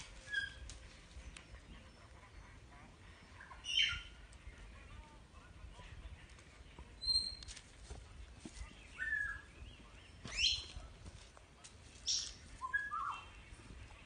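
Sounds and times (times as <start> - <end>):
high-pitched chirps and squeaks: 7.0 - 7.5.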